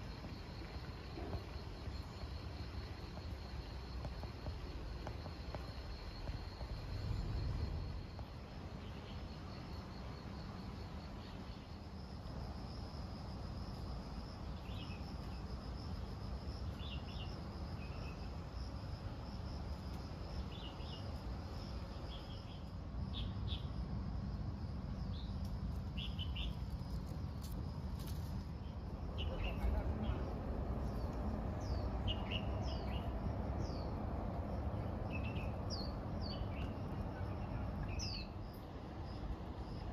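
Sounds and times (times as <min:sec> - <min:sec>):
insects trilling: 0:00.0 - 0:39.9
bird chirps: 0:31.6 - 0:33.9.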